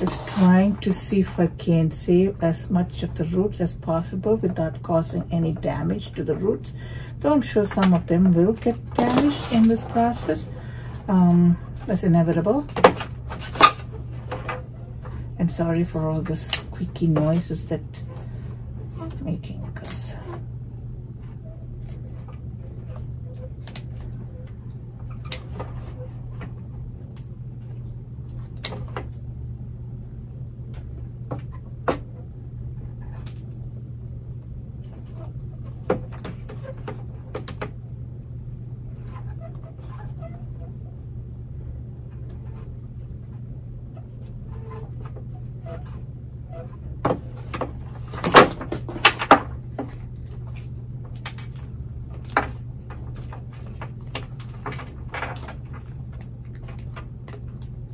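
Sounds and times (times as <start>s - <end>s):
steady low hum: 0.0s - 57.9s
plastic squeaking and snapping: 21.4s - 26.2s, 44.0s - 57.9s.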